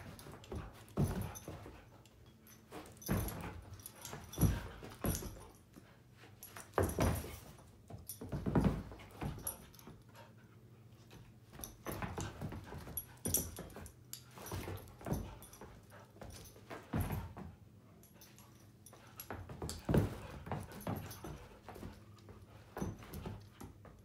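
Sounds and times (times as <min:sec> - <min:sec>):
paws scuffling on rug: 0:11.0 - 0:24.0.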